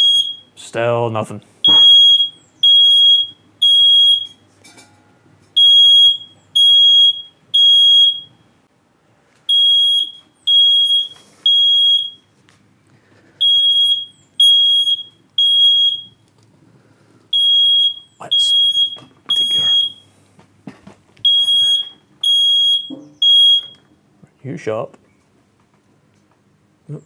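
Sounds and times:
smoke alarm beeping: 0.0 - 0.6, 1.6 - 4.4, 5.6 - 8.6, 9.5 - 12.4, 13.4 - 16.2, 17.3 - 20.2, 21.2 - 23.9.

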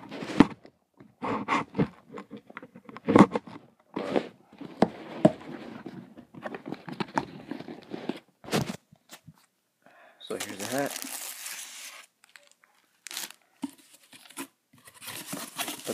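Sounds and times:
cardboard scraping and crunching: 10.3 - 15.9.

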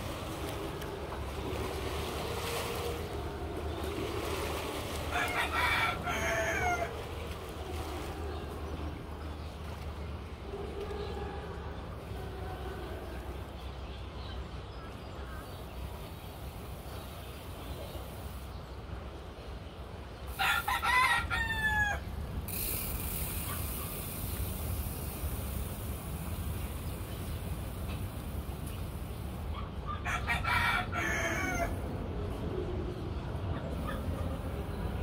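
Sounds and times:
low background rumble: 0.0 - 35.0
rooster crowing: 5.1 - 7.1, 20.3 - 22.1, 30.0 - 31.8.

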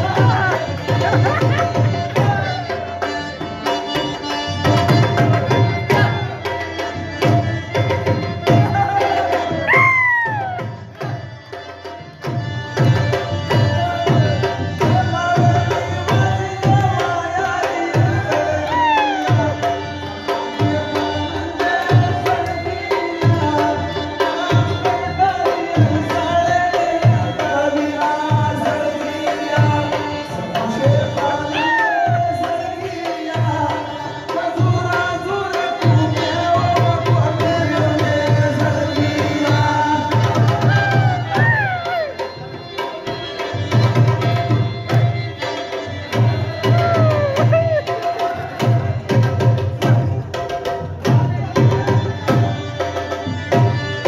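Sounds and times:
drum beating: 0.0 - 11.3, 12.2 - 19.8, 35.9 - 42.6, 43.5 - 54.0.

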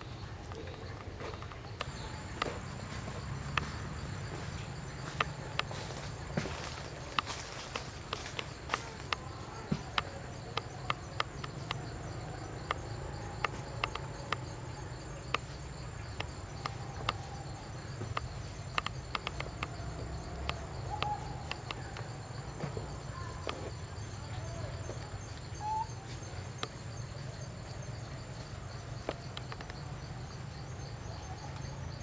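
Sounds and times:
faint distant calls: 0.0 - 32.0
sharp clicks: 7.1 - 17.3, 18.0 - 22.1, 29.0 - 29.9.

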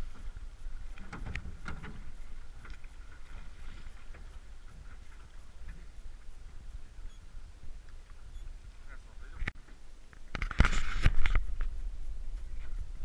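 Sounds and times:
oars splashing and knocking: 0.0 - 6.9.

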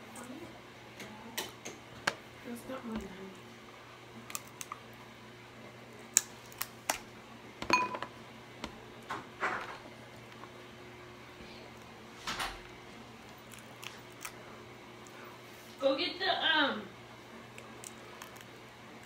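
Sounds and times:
crab shells cracking: 4.2 - 5.0, 6.0 - 7.1, 13.2 - 14.4, 17.4 - 19.0.

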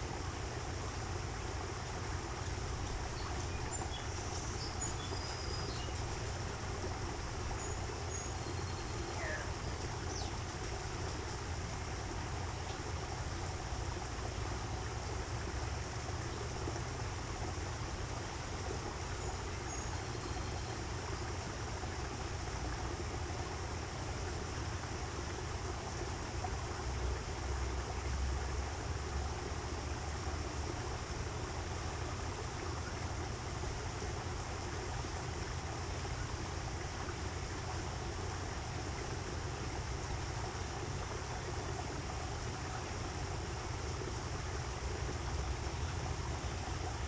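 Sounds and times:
stream water rushing: 0.0 - 47.0
faint high bird chirps: 3.2 - 6.0, 7.6 - 10.4.

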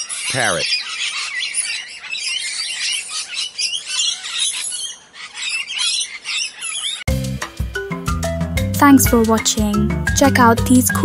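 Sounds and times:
parrots chattering: 0.0 - 7.1.

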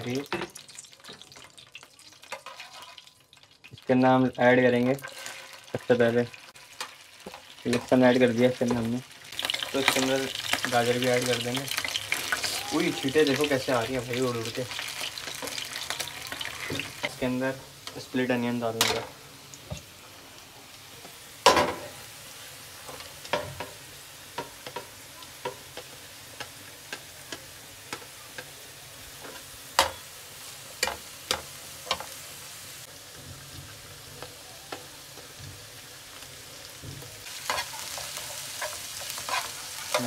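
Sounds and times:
vegetables sizzling in oil: 0.0 - 40.0.

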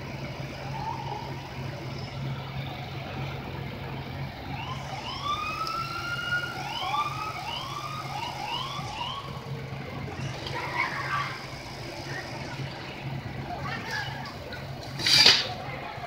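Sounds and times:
police siren wailing and yelping: 0.5 - 1.7, 4.4 - 12.5.

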